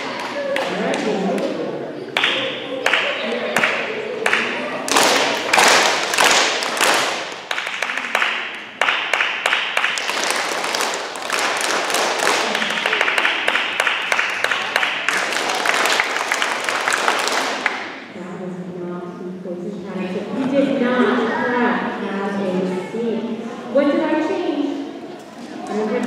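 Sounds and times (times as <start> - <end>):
children clapping hands: 0.0 - 18.0.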